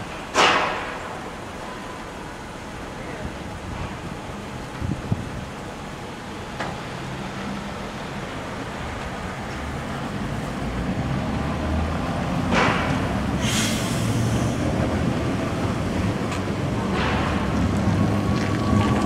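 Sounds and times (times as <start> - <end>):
streetcar rumbling on rails: 0.0 - 19.0
brief hisses: 13.4 - 14.6.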